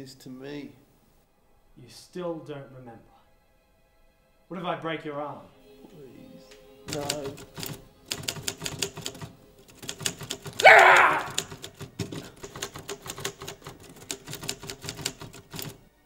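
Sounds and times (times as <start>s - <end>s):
typewriter keys clacking: 6.9s - 15.8s.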